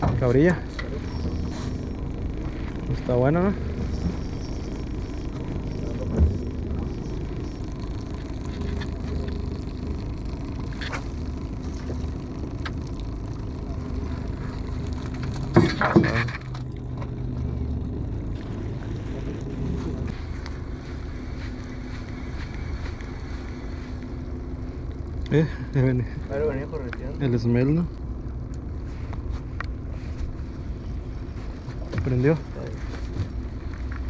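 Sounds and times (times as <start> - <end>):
outboard motor humming: 0.0 - 34.0.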